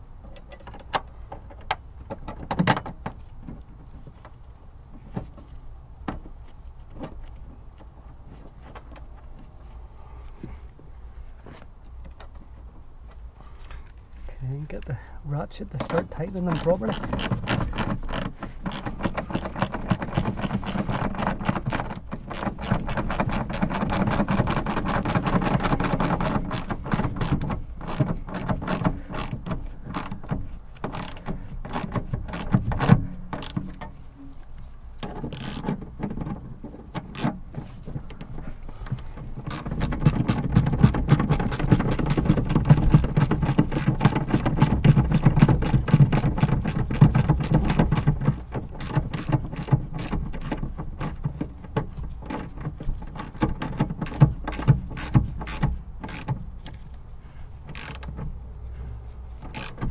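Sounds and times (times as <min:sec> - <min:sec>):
hand ratchet clicking: 0:15.8 - 0:33.6, 0:53.1 - 0:56.8, 0:57.7 - 0:58.2, 0:59.4 - 0:59.9.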